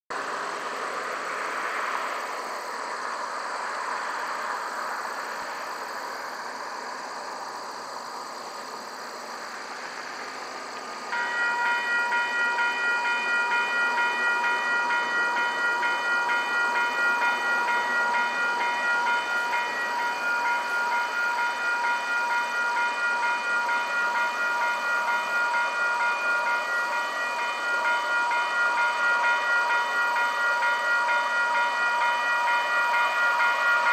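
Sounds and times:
level crossing warning bell: 11.0s - 33.9s.

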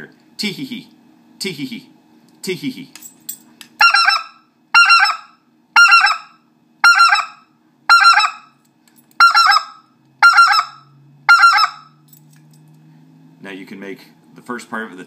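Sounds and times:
goose call blown: 3.8s - 8.4s, 9.2s - 11.9s.

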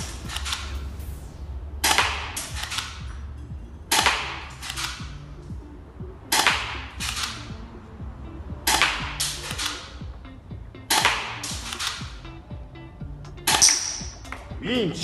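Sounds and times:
small clicks: 0.0s - 1.0s, 3.9s - 5.2s, 6.3s - 7.5s, 8.7s - 10.0s, 10.9s - 12.1s
airsoft pistol shots: 1.8s - 3.2s, 3.9s - 5.2s, 6.3s - 7.6s, 8.7s - 10.0s, 10.9s - 12.2s, 13.5s - 14.3s.

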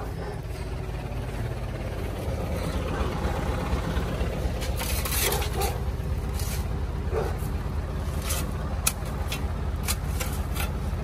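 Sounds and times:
truck engine rumbling: 0.0s - 11.0s
scraping rustle: 4.6s - 11.0s.

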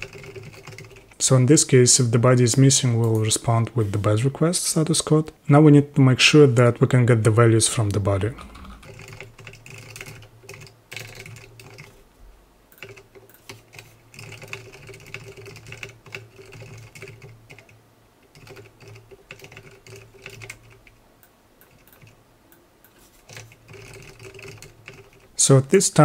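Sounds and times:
typing on computer keyboard: 0.0s - 1.2s, 8.6s - 12.0s, 12.7s - 21.0s, 21.6s - 22.2s, 22.8s - 25.3s.

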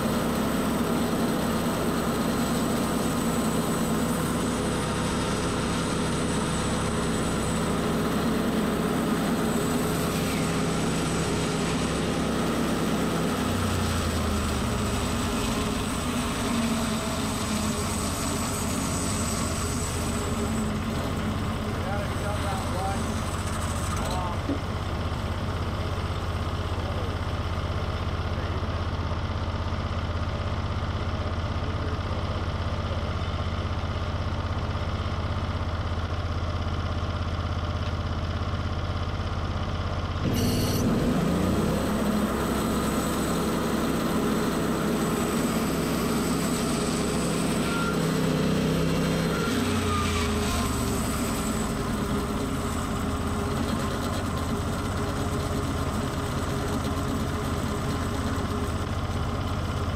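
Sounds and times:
gas engine idling and revving: 0.0s - 59.9s
band saw blade sawing logs: 0.6s - 24.6s, 40.3s - 58.9s.

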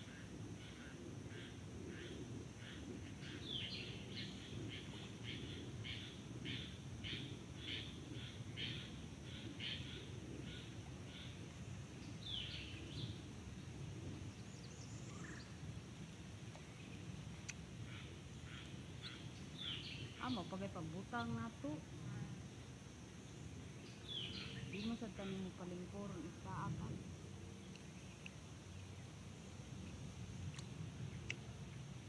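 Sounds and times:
steady low rumble: 0.0s - 32.0s
bird chirping: 12.0s - 13.2s, 17.9s - 21.0s, 23.8s - 25.7s.

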